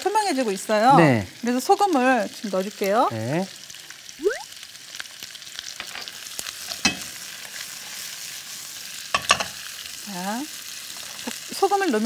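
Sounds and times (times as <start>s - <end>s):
vegetables sizzling in oil: 0.0s - 12.0s
spatula scraping a pan: 5.9s - 8.4s.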